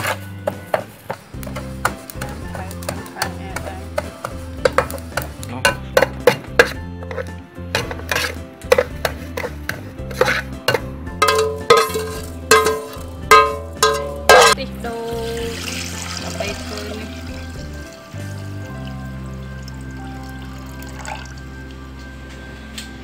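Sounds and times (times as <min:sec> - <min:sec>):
spatula scraping seeds in pan: 0:00.0 - 0:14.6
liquid pouring into steel pot: 0:15.3 - 0:21.6.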